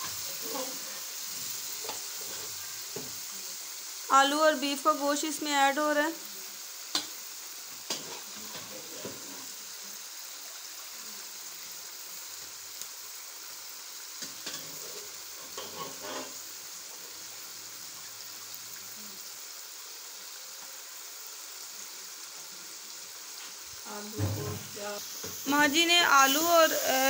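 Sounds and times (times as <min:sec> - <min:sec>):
spices sizzling in a pot: 0:00.0 - 0:27.0
utensil knocking and scraping pot: 0:14.4 - 0:16.4.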